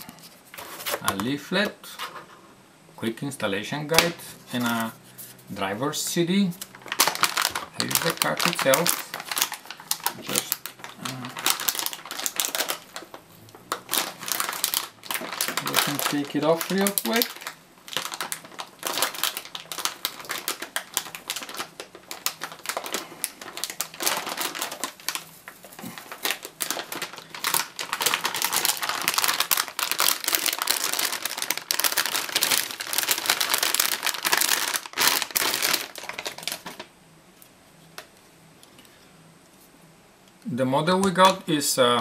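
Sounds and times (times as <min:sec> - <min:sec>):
plastic bag crinkling: 0:03.9 - 0:05.5, 0:06.5 - 0:36.9.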